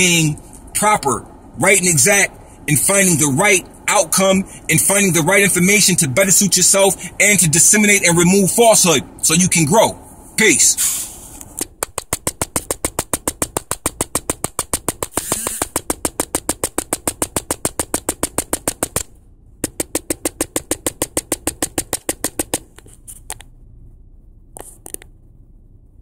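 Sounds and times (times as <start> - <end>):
rapid even clicking: 11.6 - 23.4.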